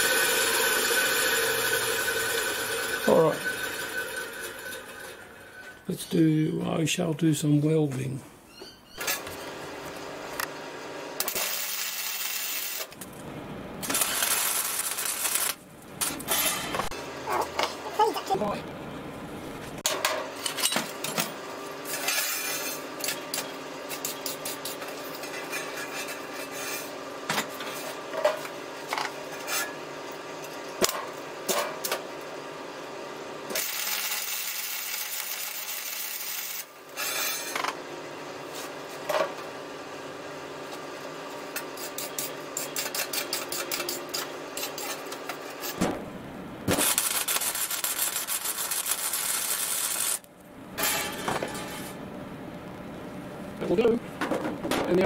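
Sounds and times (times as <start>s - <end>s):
welding arc crackling and sizzling: 0.0s - 6.2s, 11.1s - 19.8s, 33.4s - 37.7s, 41.2s - 54.2s
steady hum: 9.4s - 25.3s, 37.6s - 55.0s.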